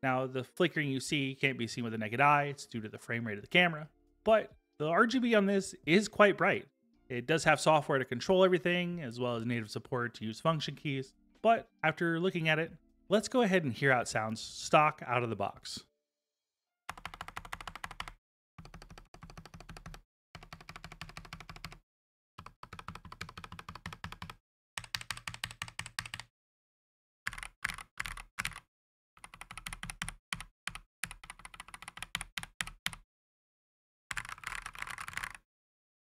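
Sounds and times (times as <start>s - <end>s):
mechanical keyboard typing: 16.9s - 21.8s, 22.4s - 26.3s, 27.3s - 28.6s, 29.2s - 33.0s, 34.1s - 35.4s.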